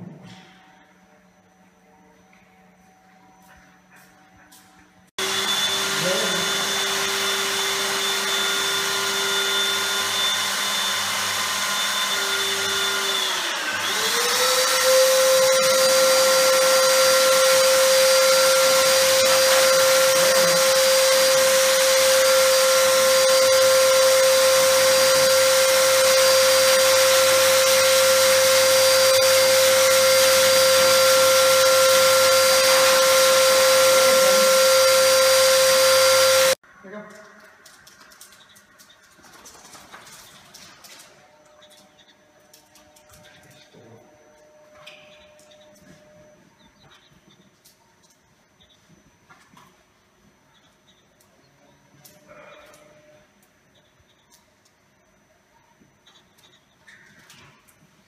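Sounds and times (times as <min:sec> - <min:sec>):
pet blow dryer whining: 0:05.2 - 0:36.6.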